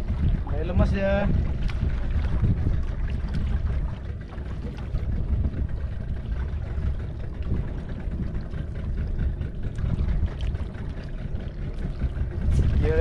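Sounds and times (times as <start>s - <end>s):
water noise: 0.0s - 13.0s
wind rumble: 0.0s - 13.0s.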